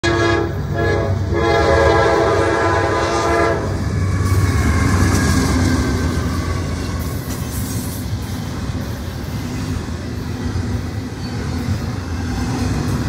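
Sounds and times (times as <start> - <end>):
locomotive air horn: 0.0 - 4.4
locomotive engine passing: 0.4 - 13.0.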